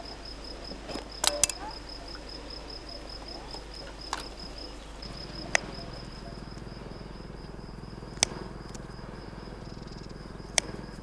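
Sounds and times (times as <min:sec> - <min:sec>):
cricket chirping: 0:00.0 - 0:11.0
sharp clicks: 0:01.2 - 0:01.7, 0:05.0 - 0:06.7, 0:08.0 - 0:09.0, 0:09.8 - 0:11.0.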